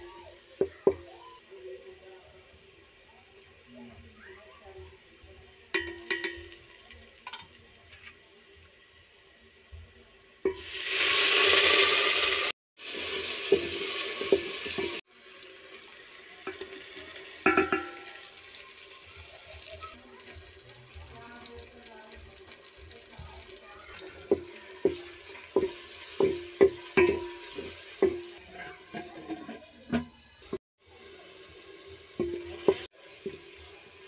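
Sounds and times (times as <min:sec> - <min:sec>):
hot oil sizzling: 0:00.0 - 0:34.0
spoon clinking against pot: 0:05.8 - 0:06.6, 0:17.4 - 0:18.4, 0:24.3 - 0:30.0.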